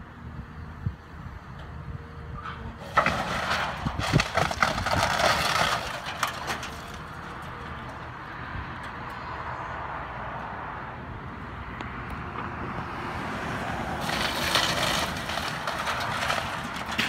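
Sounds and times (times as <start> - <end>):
wall cracking and splintering: 2.9 - 7.4, 14.0 - 17.0.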